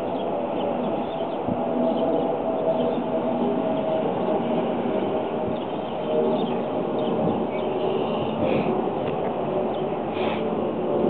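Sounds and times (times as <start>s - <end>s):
steady rumbling noise: 0.0s - 11.0s.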